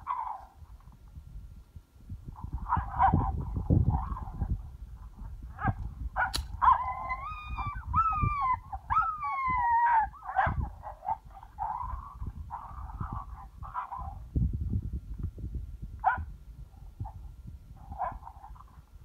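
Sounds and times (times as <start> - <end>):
wind rumbling on microphone: 0.0 - 19.0
coyote yips: 6.2 - 10.7
sharp click: 6.3 - 6.6
coyote howls: 6.6 - 14.2.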